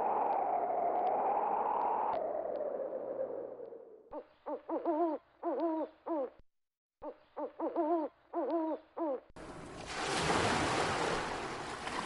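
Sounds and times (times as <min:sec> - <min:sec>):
whistling wind gust: 0:00.0 - 0:04.0
owl hooting: 0:00.0 - 0:06.3, 0:07.0 - 0:09.2.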